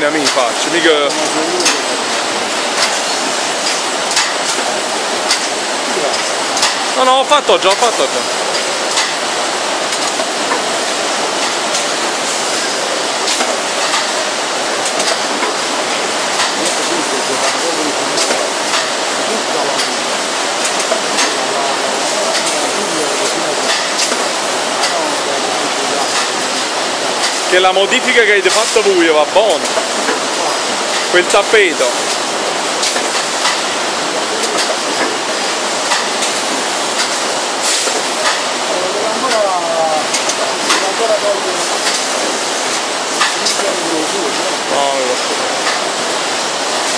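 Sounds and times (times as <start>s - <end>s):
shrink-wrapping machine hissing: 0.2s - 46.9s
mechanical clicks and knocks: 14.8s - 15.6s.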